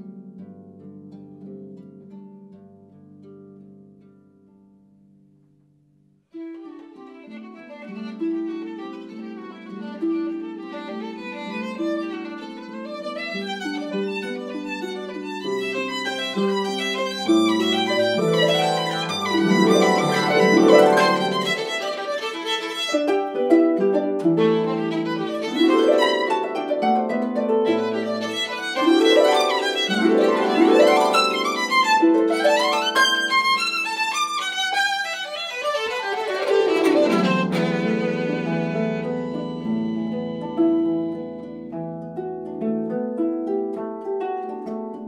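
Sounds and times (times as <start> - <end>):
violin playing: 6.3 - 41.7
harp plucked notes: 6.4 - 45.0.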